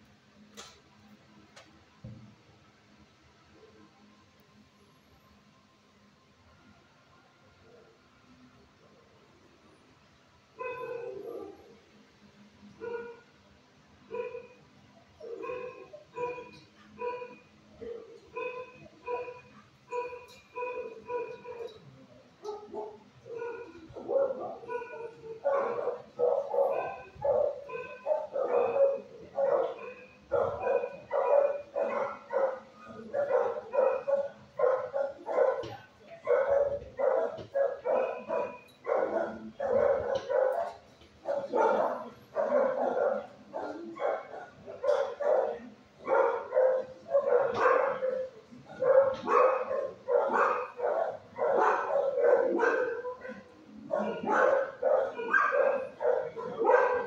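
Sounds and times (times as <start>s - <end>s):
dog barking: 10.6s - 11.7s, 12.8s - 13.3s, 14.1s - 14.6s, 15.2s - 21.8s, 22.4s - 57.0s.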